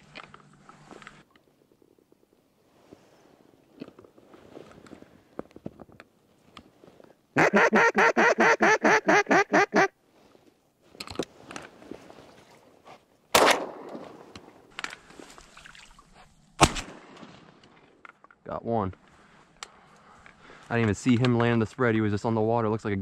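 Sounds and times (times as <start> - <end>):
duck call quacks: 7.4 - 9.9
shotgun shot: 13.3 - 14.3, 16.6 - 17.6.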